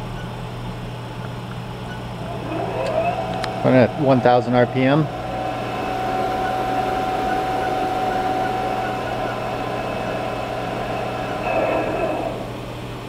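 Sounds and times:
milling machine spindle hum: 0.0 - 13.0
thin whine: 1.9 - 13.0.

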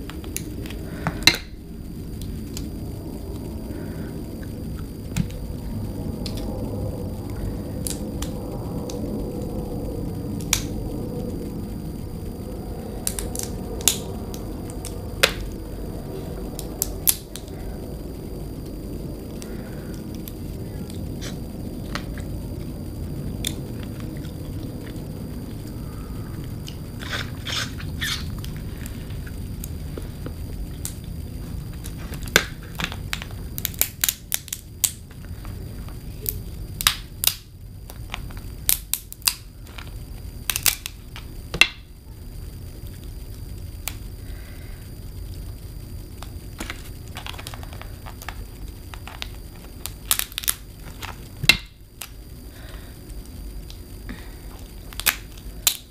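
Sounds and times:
low hum: 0.0 - 55.9
seafood shells cracking: 32.3 - 35.0, 36.8 - 39.4, 40.5 - 41.2, 46.6 - 52.2, 54.9 - 55.9.

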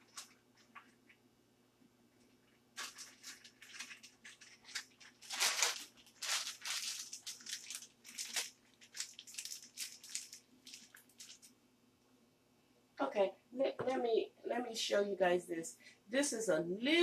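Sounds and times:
plastic piping bag crinkling: 0.0 - 1.2, 2.2 - 11.6.

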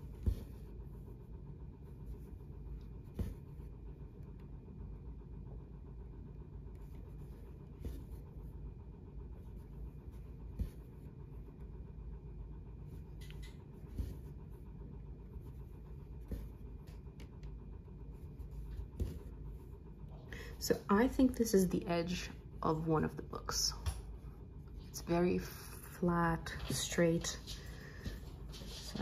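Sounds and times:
needle and thread through cloth: 0.0 - 4.5, 6.6 - 11.9, 12.8 - 19.9
low room hum: 0.0 - 29.0.

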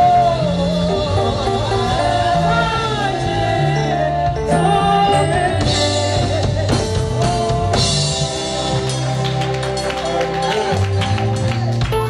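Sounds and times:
gospel singing with band: 0.0 - 11.8.

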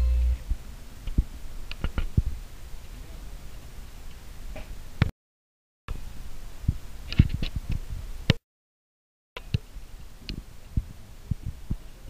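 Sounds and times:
low rumble: 0.0 - 0.7.

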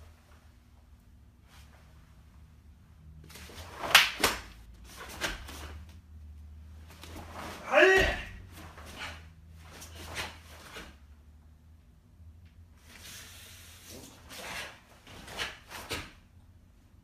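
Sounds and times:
faint low room hum: 0.0 - 17.0
fabric swishing and snapping: 3.2 - 5.8
bare feet on foam mats: 3.2 - 11.1, 12.7 - 16.3.

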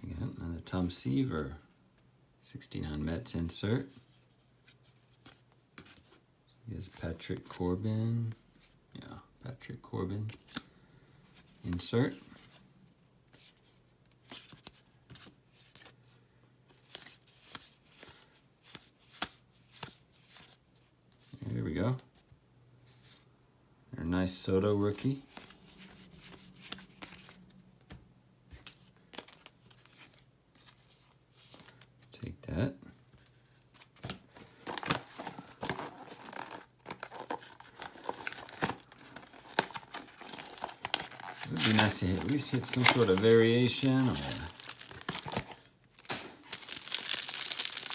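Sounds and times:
cards flipped by hand: 16.7 - 20.6, 25.3 - 31.9, 33.2 - 47.9.

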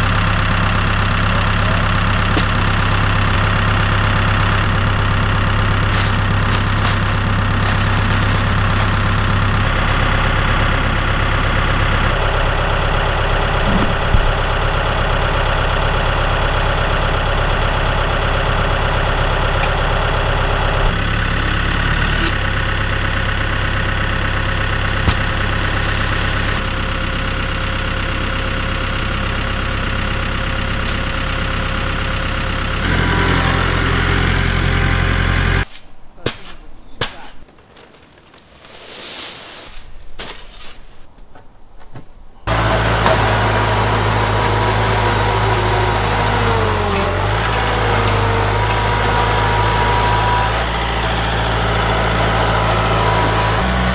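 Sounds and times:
tractor engine idling: 0.0 - 35.7, 42.4 - 53.9.

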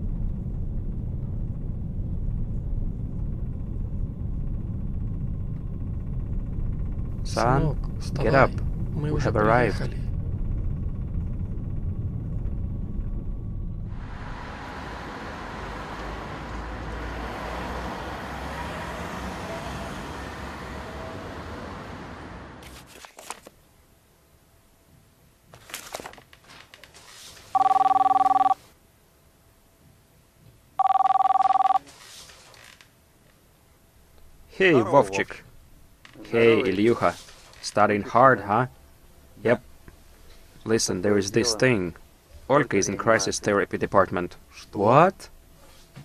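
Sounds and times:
train rumbling: 0.0 - 22.6
mobile phone ringing: 27.5 - 28.6, 30.8 - 31.8.

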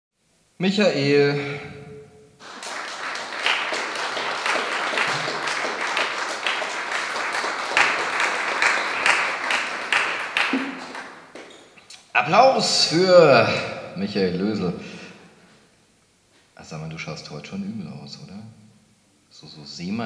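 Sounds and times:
audience applauding: 2.4 - 11.8.

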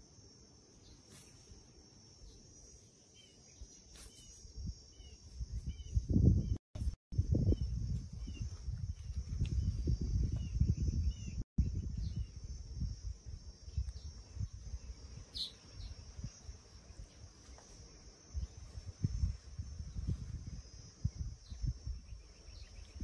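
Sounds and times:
high insect drone: 0.0 - 6.2, 7.2 - 23.0
wind buffeting microphone: 5.4 - 17.3, 18.3 - 23.0.

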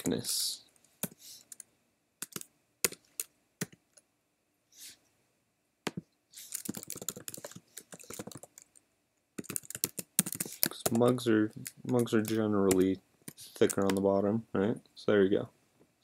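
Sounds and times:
computer keyboard typing: 1.0 - 3.8, 6.4 - 8.8, 9.4 - 14.1.

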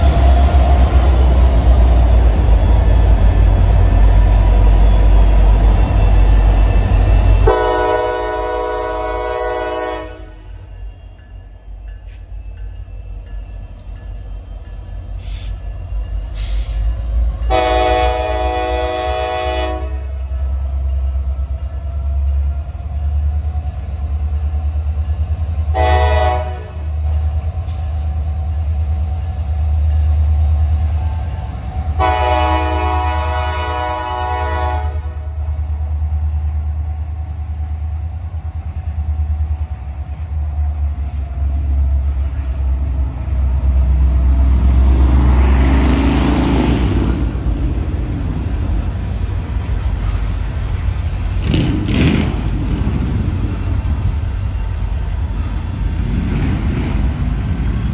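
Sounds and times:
locomotive air horn blasts: 7.4 - 10.5, 17.5 - 20.2, 25.7 - 26.9, 32.0 - 35.2
diesel engines rumbling: 13.1 - 57.9.

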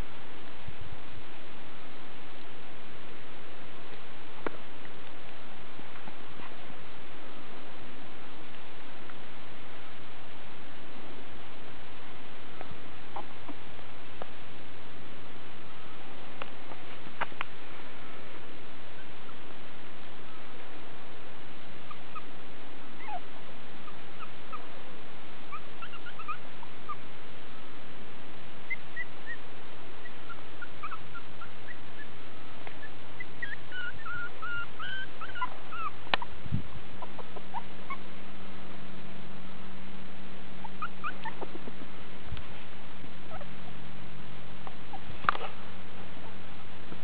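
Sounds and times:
puppies whimpering and squeaking: 23.0 - 24.6, 25.5 - 27.0, 28.7 - 29.4, 30.0 - 32.1, 32.8 - 36.3, 37.0 - 38.1, 40.6 - 41.6, 43.3 - 43.5.

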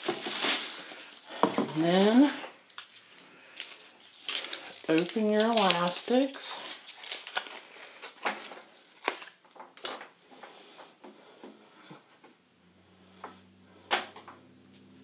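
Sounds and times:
packaging rustling: 0.0 - 10.2.

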